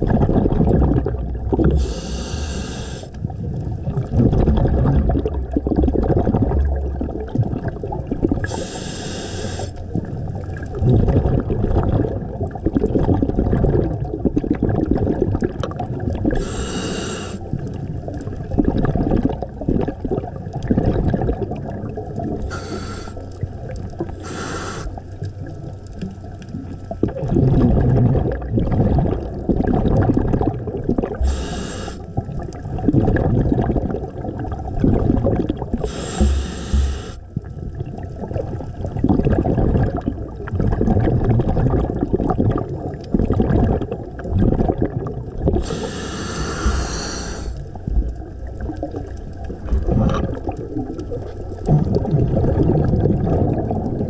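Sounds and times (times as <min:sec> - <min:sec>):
gurgling exhaled bubbles: 0:00.0 - 0:54.0
hissing regulator inhalations: 0:01.8 - 0:03.2, 0:08.5 - 0:09.8, 0:16.4 - 0:17.5, 0:22.5 - 0:23.3, 0:24.2 - 0:25.0, 0:31.2 - 0:32.1, 0:35.8 - 0:37.2, 0:45.6 - 0:47.6.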